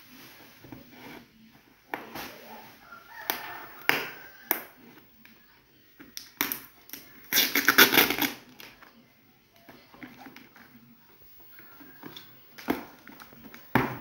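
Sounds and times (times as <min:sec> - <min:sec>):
scissors snipping packing tape: 0:06.4 - 0:08.4
tape tearing off cardboard: 0:06.4 - 0:08.6.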